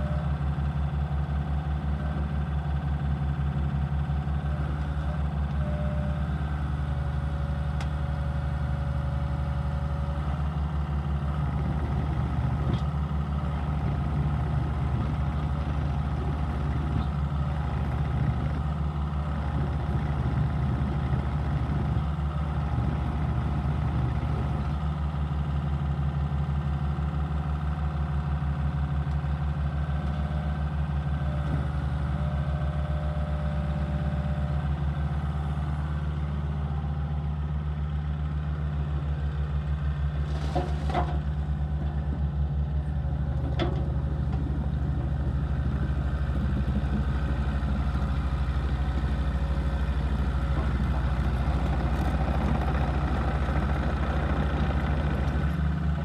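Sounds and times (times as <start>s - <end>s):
diesel engine running at low speed: 0.0s - 56.0s.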